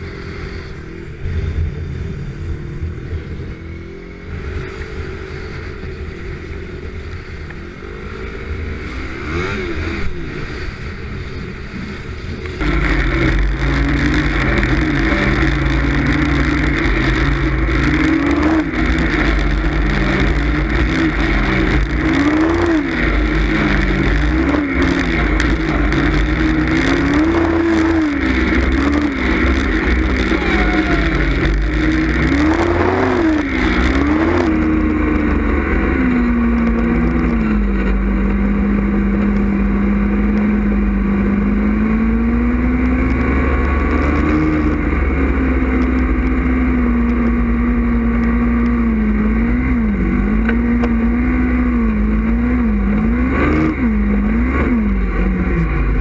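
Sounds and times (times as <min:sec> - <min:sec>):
snowmobile engine revving: 0:00.0 - 0:56.0.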